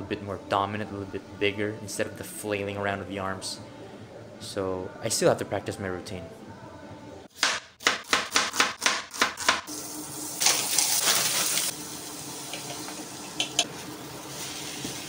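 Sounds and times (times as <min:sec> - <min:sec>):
knife chopping onion on board: 0:07.3 - 0:09.7
food sizzling in a frying pan: 0:09.7 - 0:15.0.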